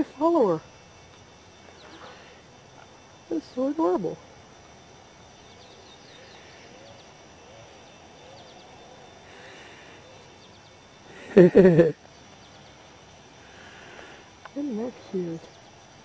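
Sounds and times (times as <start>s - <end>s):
faint bird chirps: 1.5s - 2.5s, 5.2s - 15.9s.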